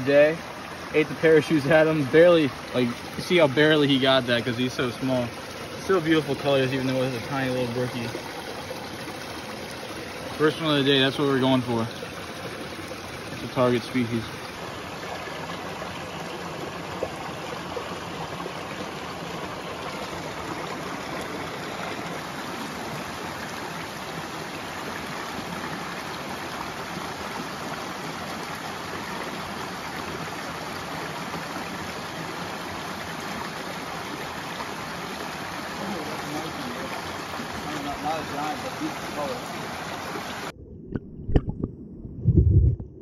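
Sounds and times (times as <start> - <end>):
stream rushing over rocks: 0.0 - 40.5.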